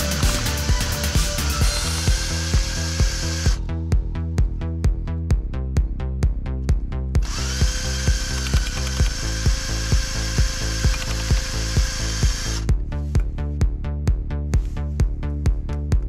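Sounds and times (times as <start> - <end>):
cordless drill mixer whine: 0.0 - 3.7, 7.2 - 12.7
electronic music with steady beat: 0.0 - 16.0.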